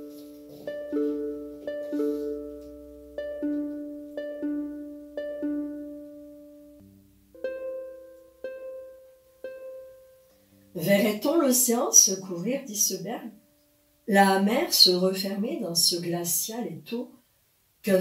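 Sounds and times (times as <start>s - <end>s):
plucked string notes: 0.0s - 11.4s.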